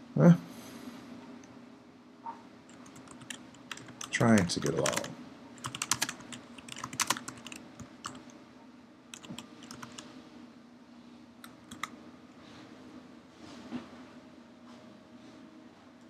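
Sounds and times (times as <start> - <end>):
low steady hum: 0.0 - 16.0
typing on computer keyboard: 2.7 - 8.3, 9.1 - 10.0, 11.4 - 11.9.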